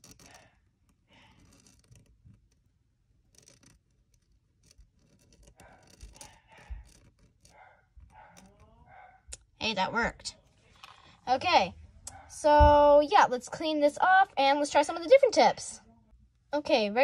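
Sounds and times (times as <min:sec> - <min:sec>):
pen nib scratching on paper: 0:00.0 - 0:08.7.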